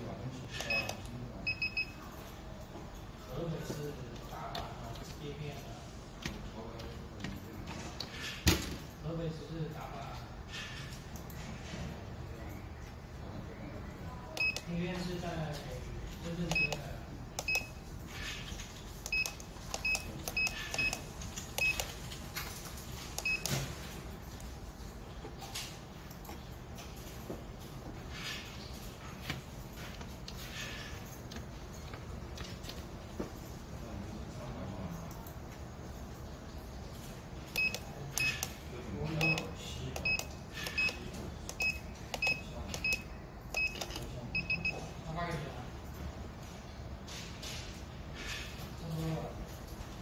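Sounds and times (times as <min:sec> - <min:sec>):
keypad beeps: 0:00.6 - 0:02.2, 0:14.3 - 0:14.7, 0:16.5 - 0:17.8, 0:19.1 - 0:22.0, 0:23.2 - 0:23.7, 0:37.5 - 0:38.5, 0:39.2 - 0:44.8
keypad button clicks: 0:39.2 - 0:44.7.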